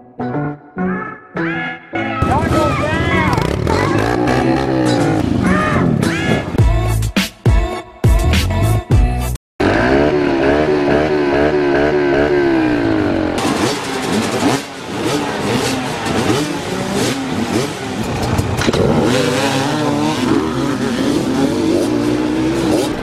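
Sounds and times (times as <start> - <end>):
dirt bike engines revving: 2.2 - 6.6, 9.6 - 23.0.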